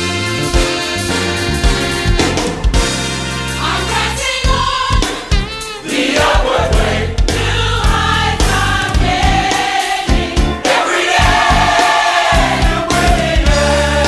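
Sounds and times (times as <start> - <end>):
band with bass line: 0.0 - 14.0
gospel choir singing: 3.4 - 14.0
drum hits: 4.5 - 13.8.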